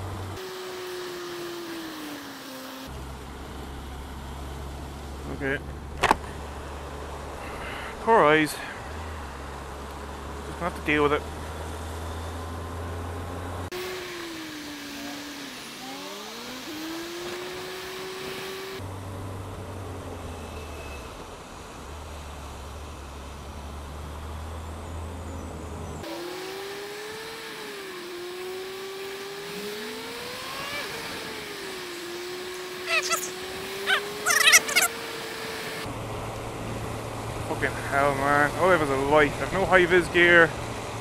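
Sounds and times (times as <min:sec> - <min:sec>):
wind and wet-road noise: 0:00.0 - 0:41.0
motorcycle engine: 0:29.5 - 0:35.2.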